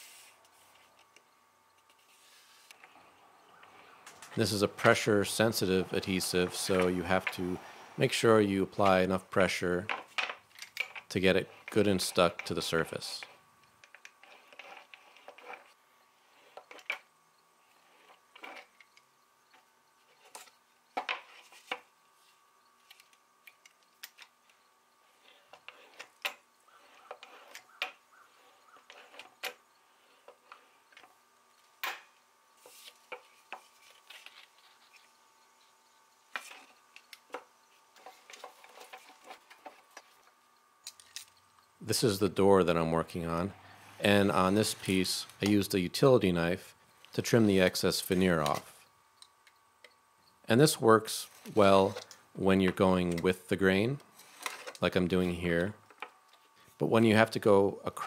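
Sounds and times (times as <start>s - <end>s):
hand roller rubbing: 14.2s - 16.9s, 25.1s - 30.9s.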